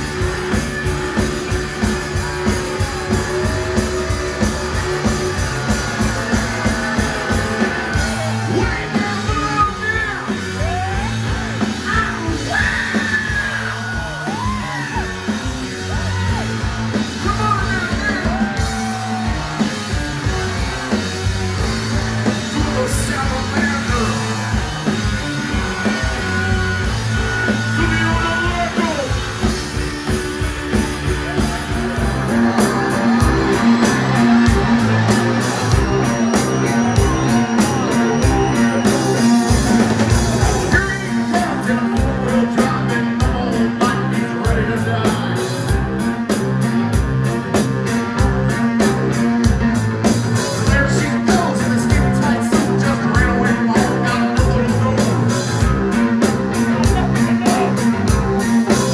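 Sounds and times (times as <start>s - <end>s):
live rock band playing: 0.0s - 58.9s
person singing: 40.7s - 45.8s.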